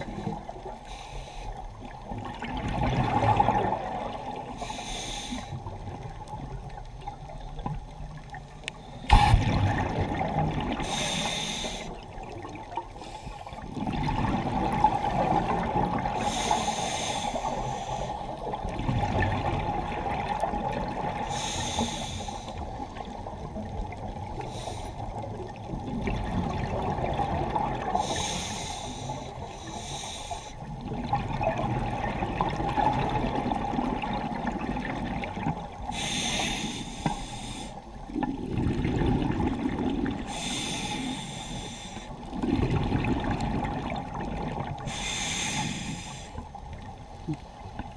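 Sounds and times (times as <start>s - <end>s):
regulator hissing inhalations: 4.6s - 5.6s, 10.8s - 12.0s, 16.2s - 18.2s, 21.3s - 22.6s, 28.0s - 30.6s, 35.9s - 37.8s, 40.3s - 42.2s, 44.9s - 46.4s.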